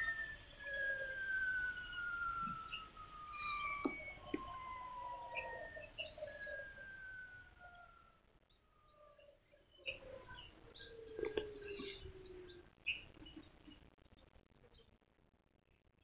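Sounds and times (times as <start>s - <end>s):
lower falling whine: 0.0s - 7.6s.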